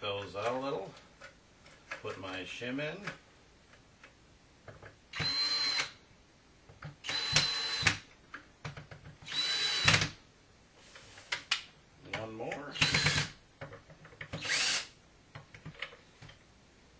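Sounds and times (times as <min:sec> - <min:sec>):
cordless drill motor whine: 0:05.2 - 0:05.9, 0:07.0 - 0:08.0, 0:09.3 - 0:10.1, 0:14.4 - 0:14.9.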